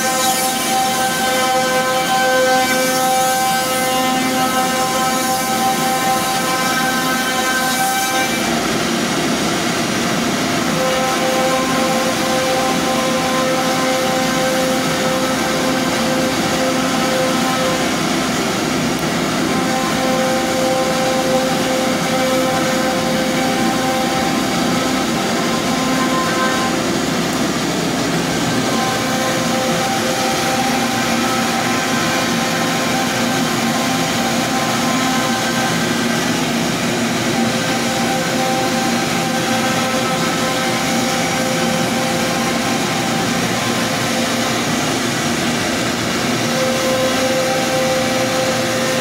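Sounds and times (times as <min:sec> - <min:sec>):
cnc router cutting wood: 0:00.0 - 0:49.0
steady whining tones: 0:00.0 - 0:49.0.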